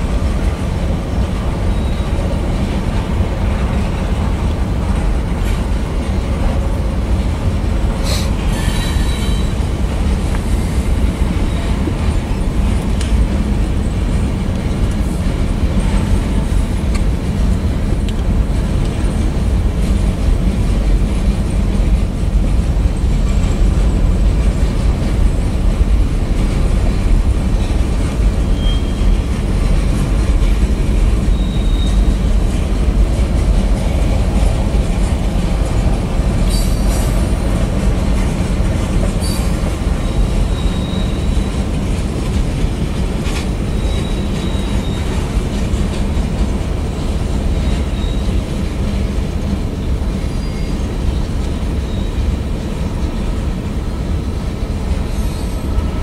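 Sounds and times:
train wheels rumbling on rail: 0.0 - 56.0
wheel squeals: 1.6 - 2.6, 8.1 - 9.6, 28.4 - 29.4, 31.2 - 32.5, 39.1 - 41.7, 43.7 - 45.4, 47.5 - 48.5, 50.2 - 52.4.

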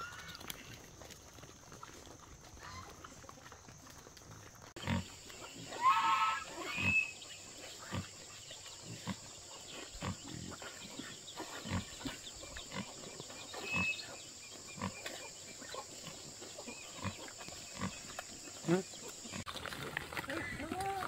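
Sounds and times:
pigs grunting: 4.2 - 21.0
pig squealing: 5.6 - 7.2, 13.6 - 14.2.

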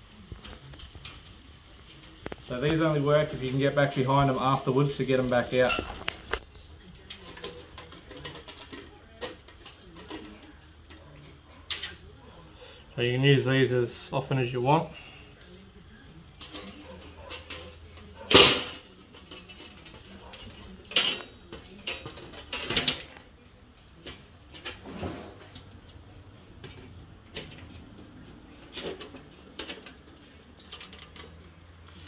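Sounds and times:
metal clanks and scrapes: 7.1 - 12.0, 24.0 - 25.7.

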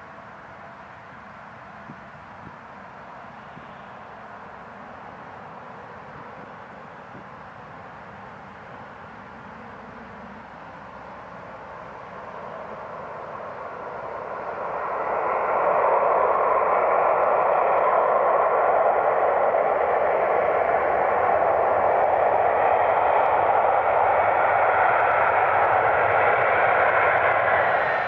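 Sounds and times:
jet engines roaring: 8.9 - 28.0.

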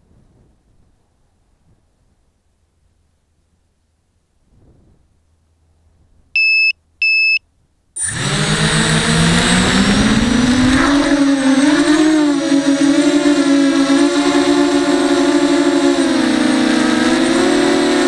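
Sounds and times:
short beeps: 6.4 - 7.4
drone motors buzzing: 8.0 - 18.0.

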